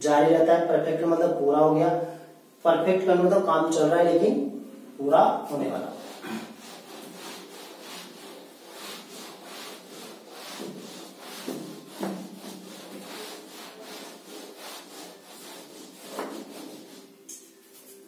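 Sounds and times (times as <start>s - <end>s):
eraser rubbing on whiteboard: 5.5s - 18.0s.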